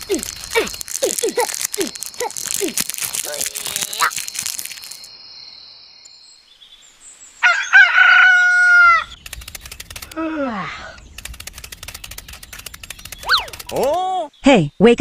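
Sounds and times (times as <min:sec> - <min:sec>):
rooster crowing: 0:07.4 - 0:09.2.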